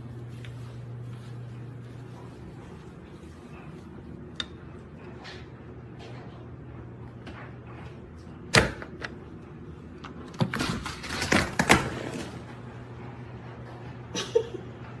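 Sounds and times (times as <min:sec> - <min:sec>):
low household hum: 0:00.0 - 0:15.0.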